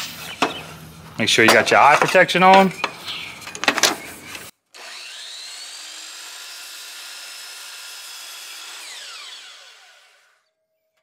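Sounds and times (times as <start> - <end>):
miter saw whining: 4.3 - 10.6.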